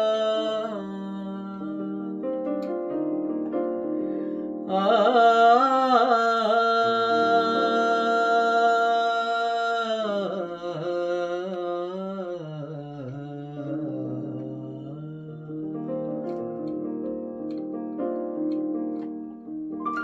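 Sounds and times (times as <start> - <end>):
man singing: 0.0 - 2.2, 4.7 - 16.0
sustained keyboard chords: 6.6 - 9.8, 13.6 - 20.0.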